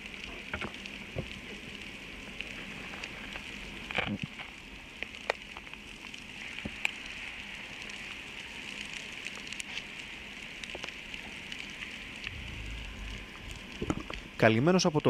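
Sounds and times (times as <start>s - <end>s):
sharp clicks and crackles: 0.0s - 15.0s
underwater hiss: 11.8s - 14.4s
brief low rumble: 12.2s - 14.4s.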